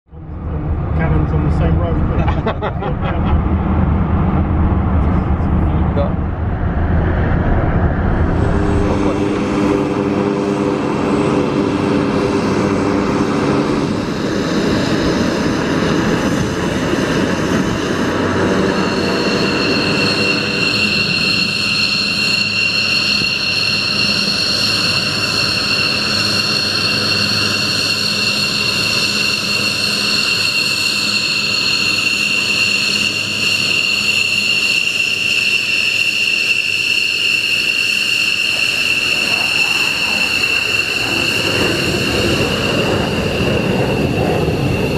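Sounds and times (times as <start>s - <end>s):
low rumble: 0.1s - 26.0s
jet engine whining: 0.1s - 44.9s
piercing high whine: 0.2s - 44.9s.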